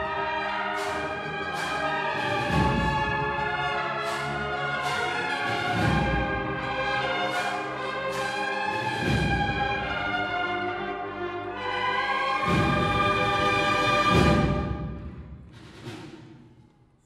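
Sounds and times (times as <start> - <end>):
percussion strokes: 0.0 - 10.3
held brass chords: 0.0 - 14.9.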